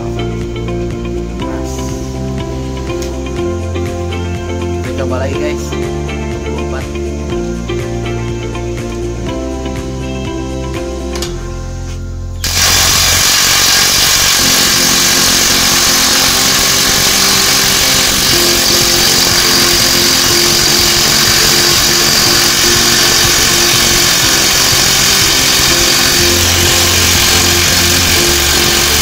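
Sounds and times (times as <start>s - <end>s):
impact wrench hammering: 12.4s - 29.0s.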